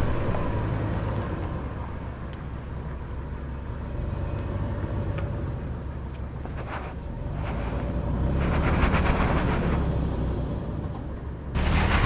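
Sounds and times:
off-road vehicle engine running low: 0:07.2 - 0:12.0.

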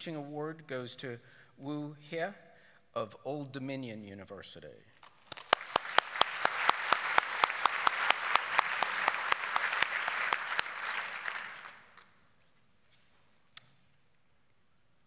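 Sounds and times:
close hand claps: 0:05.0 - 0:12.2
audience applauding: 0:05.2 - 0:12.2.

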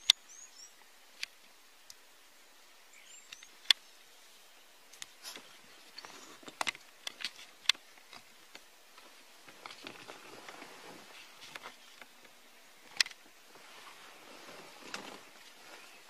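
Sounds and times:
faint high bird chirps: 0:00.0 - 0:00.8, 0:02.9 - 0:04.7.

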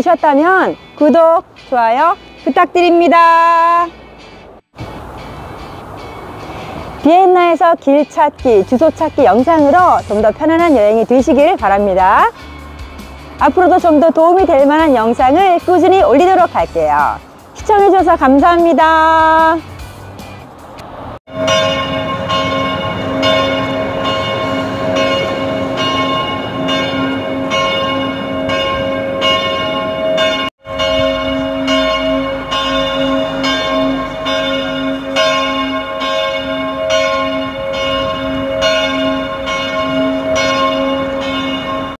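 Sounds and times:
church bells ringing: 0:21.3 - 0:42.0.

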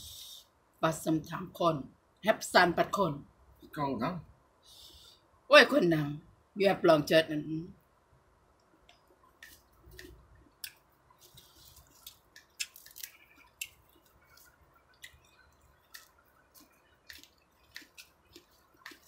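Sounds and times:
person chewing and lip smacking: 0:09.2 - 0:19.0.

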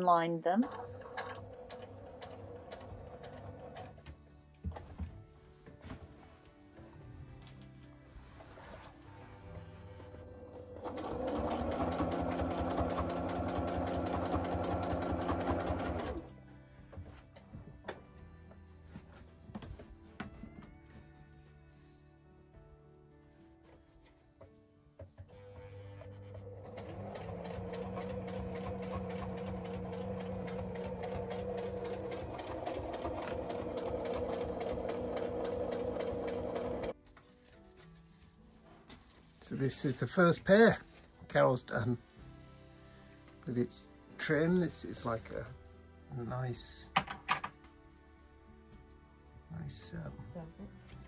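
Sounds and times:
sewing machine stitching: 0:00.6 - 0:04.0, 0:10.1 - 0:16.3, 0:26.0 - 0:36.9.

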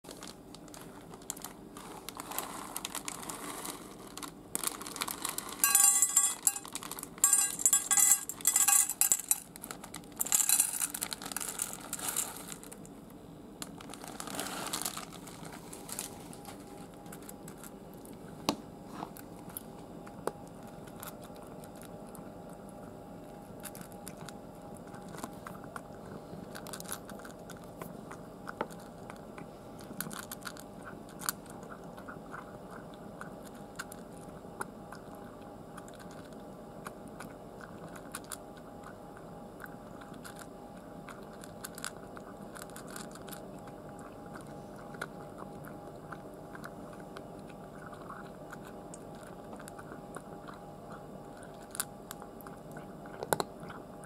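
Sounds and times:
plastic bag crinkling: 0:00.1 - 0:12.9, 0:13.6 - 0:18.1, 0:41.3 - 0:43.4
cat crunching dry food: 0:00.1 - 0:13.0, 0:13.6 - 0:18.4, 0:19.1 - 0:54.0
kibble clattering into steel bowl: 0:05.3 - 0:09.6, 0:10.2 - 0:12.7.

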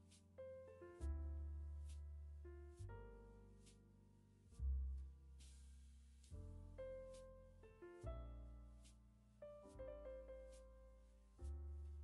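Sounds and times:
soft piano music: 0:00.0 - 0:12.0.

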